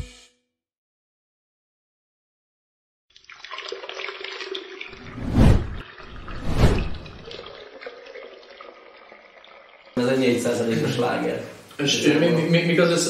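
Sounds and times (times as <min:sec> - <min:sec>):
beer pouring and fizzing: 0:03.1 - 0:10.5
liquid gushes: 0:03.2 - 0:09.8.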